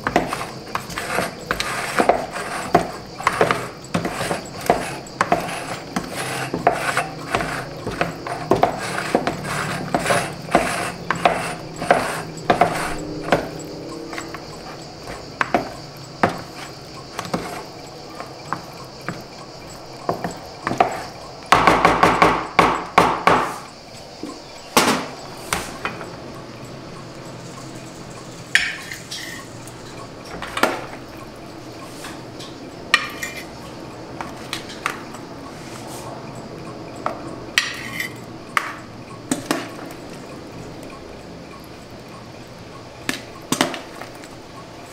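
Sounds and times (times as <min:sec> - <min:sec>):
ceramic plates and utensils clinking: 0:00.0 - 0:19.2, 0:32.1 - 0:33.6, 0:37.0 - 0:39.8
wooden spoon scraping plastic bowl: 0:00.0 - 0:19.2.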